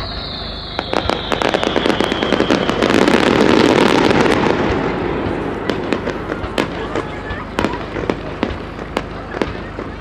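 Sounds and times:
firework whistle sliding down: 0:00.0 - 0:04.1
firework crackling pops: 0:00.0 - 0:10.0.

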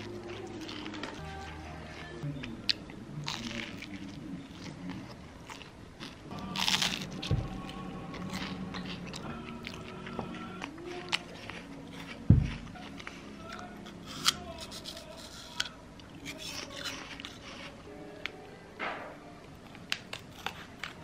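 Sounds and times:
crisp bites and chewing: 0:00.0 - 0:17.7, 0:19.6 - 0:21.0
soft background music: 0:00.0 - 0:21.0
dull thump: 0:12.3 - 0:12.6.

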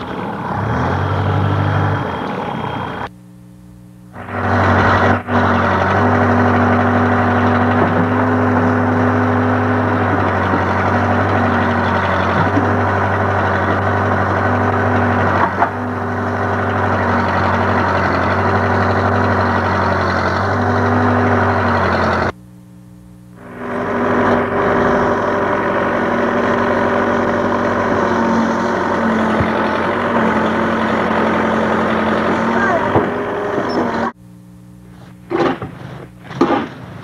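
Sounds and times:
backhoe engine running: 0:00.0 - 0:03.3, 0:04.0 - 0:37.0.

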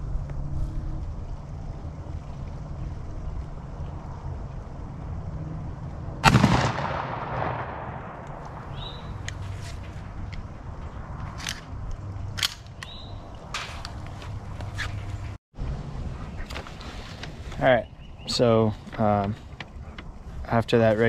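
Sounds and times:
shotgun blast echoing: 0:06.2 - 0:09.1.

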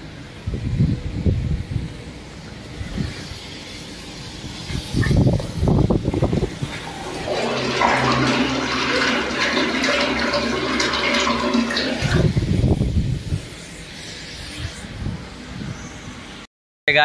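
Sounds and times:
water gushing into metal tank: 0:04.5 - 0:13.0
low rumbling: 0:04.9 - 0:16.2.

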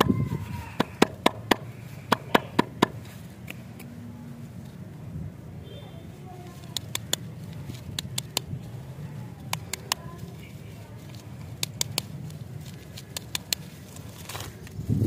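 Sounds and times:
wrapper crinkling: 0:09.7 - 0:14.8.

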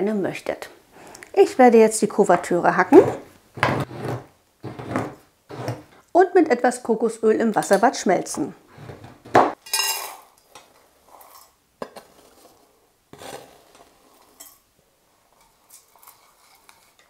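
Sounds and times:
knife scraping cutting board: 0:02.9 - 0:05.9, 0:08.7 - 0:09.4, 0:11.1 - 0:14.5
metal clink on bowl: 0:09.6 - 0:10.2
spoon clinking in bowl: 0:09.6 - 0:10.2.

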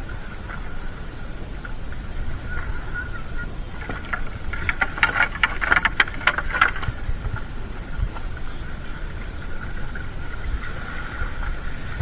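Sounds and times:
faint high hum: 0:00.0 - 0:12.0
net clicking and rattling: 0:03.8 - 0:07.0.

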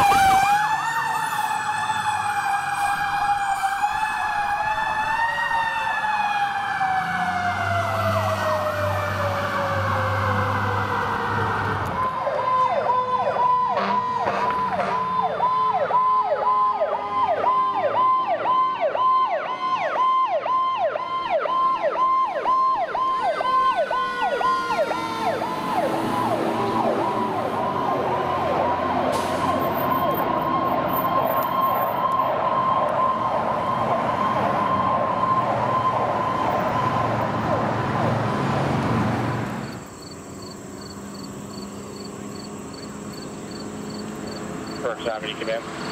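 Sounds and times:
electronic siren yelp and warble: 0:00.0 - 0:37.5
siren winding down: 0:00.0 - 0:38.1
diesel truck engine: 0:21.6 - 0:45.9.

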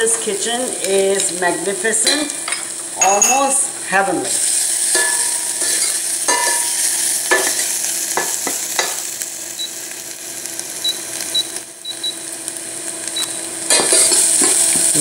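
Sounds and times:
onions sizzling in a pot: 0:00.0 - 0:15.0
metal spoon clinking against pot: 0:04.9 - 0:07.6.

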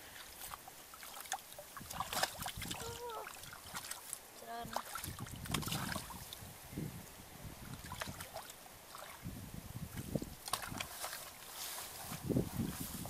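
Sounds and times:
hands splashing in muddy water: 0:00.1 - 0:06.4, 0:07.7 - 0:09.3, 0:09.9 - 0:12.2.

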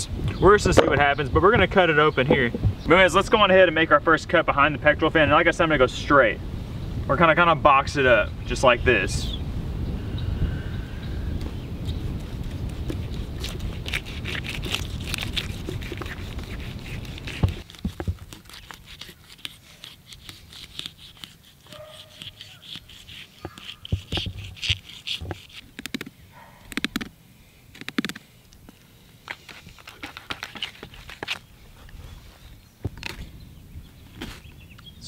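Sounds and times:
wind rumble on microphone: 0:00.0 - 0:18.2
knife scraping fish scales: 0:11.9 - 0:25.6, 0:29.3 - 0:31.4.

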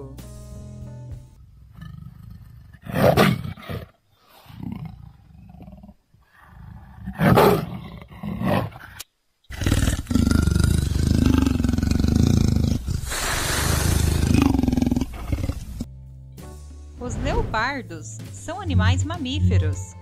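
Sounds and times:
leopard growling: 0:01.4 - 0:15.9
leopard calls: 0:07.1 - 0:15.9.

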